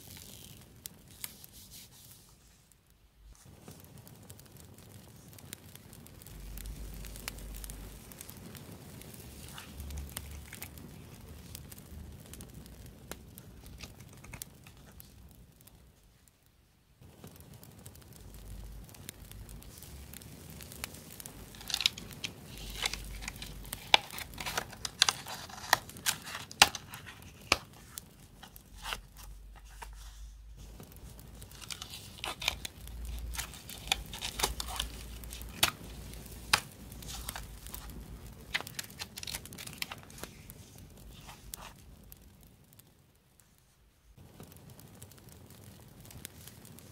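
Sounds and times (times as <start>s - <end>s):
paper rustling and crinkling: 0.0s - 2.7s, 9.3s - 11.6s, 13.6s - 15.1s, 20.9s - 41.8s.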